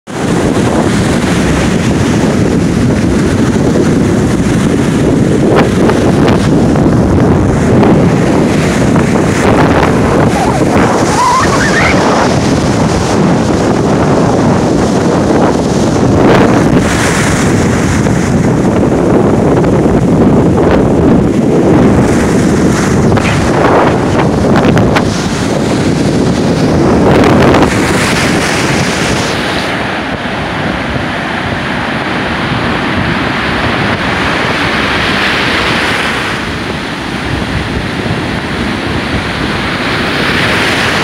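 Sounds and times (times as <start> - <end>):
surf breaking and washing in: 0.1 - 41.0
wind buffeting microphone: 0.1 - 41.0.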